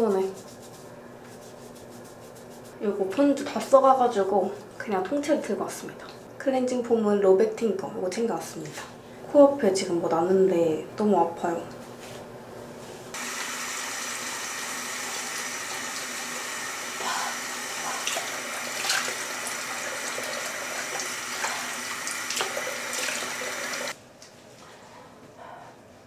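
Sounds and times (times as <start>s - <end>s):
water splashing on face: 17.9s - 23.9s
tap running into sink: 22.0s - 23.9s.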